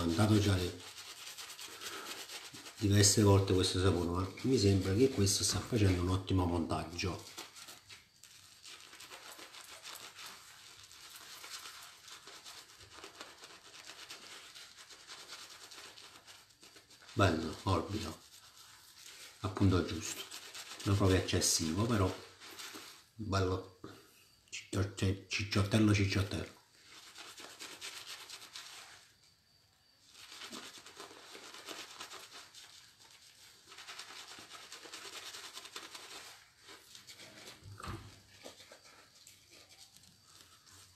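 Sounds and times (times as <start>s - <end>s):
shaving brush scrubbing lather: 0.0s - 23.6s, 24.6s - 29.3s, 29.9s - 40.9s.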